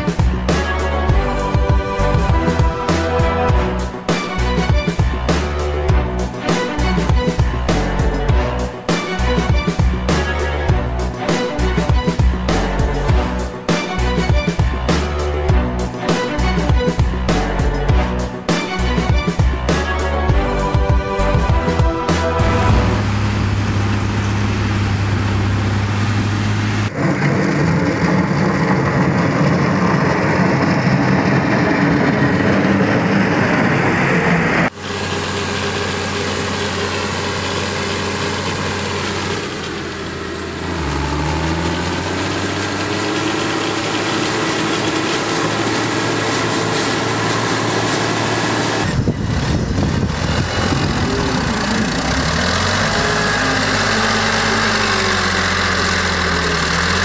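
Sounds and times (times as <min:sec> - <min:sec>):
high engine whine: 0:00.0 - 0:57.0
tractor engines idling: 0:00.0 - 0:57.0
tractor engines under load: 0:00.0 - 0:57.0.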